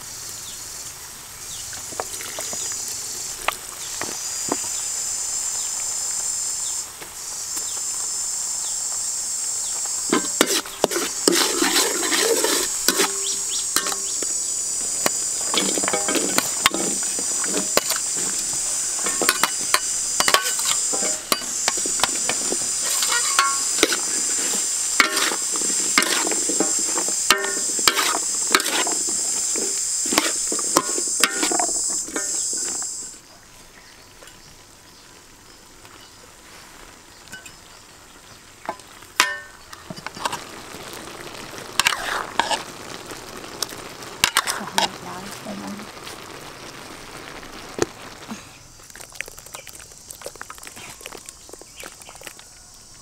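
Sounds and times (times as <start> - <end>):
vegetables sizzling in a wok: 0.0 - 53.0
metal spatula scraping a wok: 10.1 - 14.3, 15.4 - 33.0, 41.8 - 42.6, 44.2 - 45.0.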